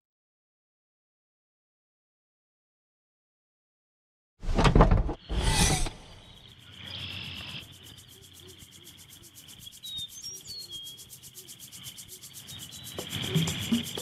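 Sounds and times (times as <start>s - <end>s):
bird chirps: 5.2s - 14.0s
insects trilling: 5.2s - 14.0s.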